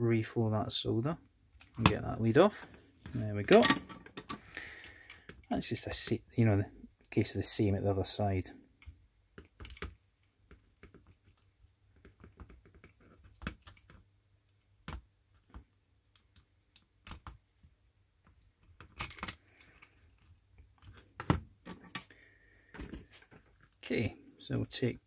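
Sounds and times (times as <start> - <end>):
handling clicks and snaps: 8.8 - 22.1.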